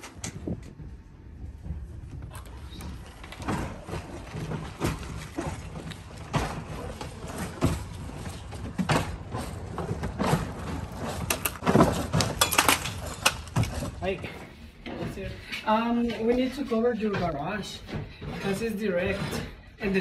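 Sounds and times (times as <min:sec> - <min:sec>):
shingles scraping knocks: 0:02.5 - 0:14.0.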